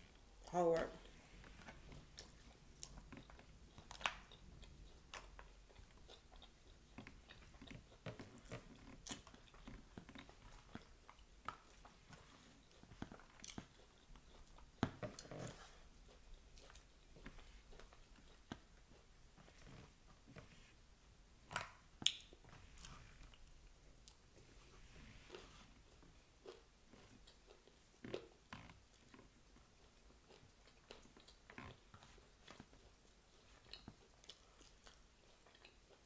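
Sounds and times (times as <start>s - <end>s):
chewing and crunching salad: 0.0s - 20.5s, 21.4s - 36.0s.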